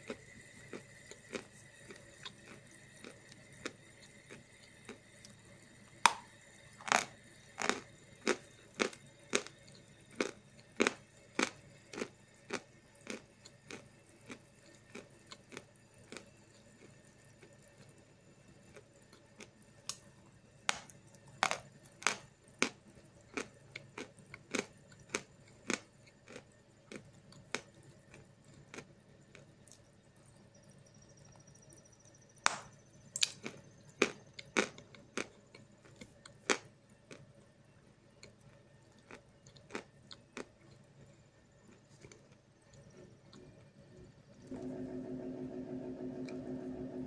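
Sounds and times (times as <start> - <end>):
chalk being chewed crunching: 0.0 - 5.4, 6.1 - 18.0, 20.7 - 29.9, 32.5 - 43.6.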